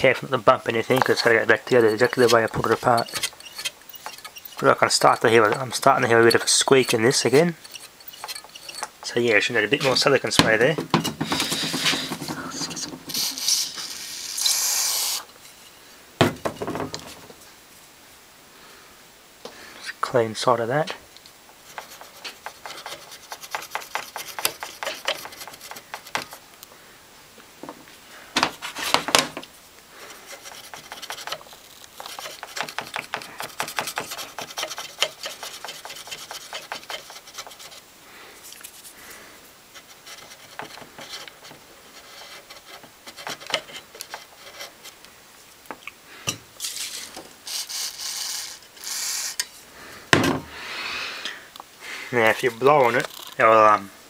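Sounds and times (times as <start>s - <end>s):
cotton bud scratchy rubbing: 0.6s - 10.2s, 30.0s - 37.9s
hisses: 11.2s - 15.3s, 46.0s - 52.2s.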